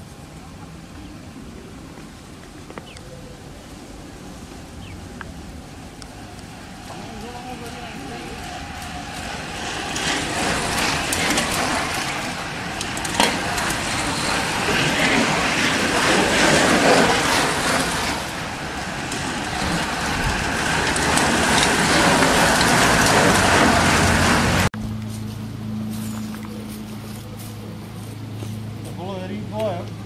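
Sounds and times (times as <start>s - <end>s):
bicycle tyres rushing on road: 4.9s - 24.7s
car engine: 5.5s - 26.6s.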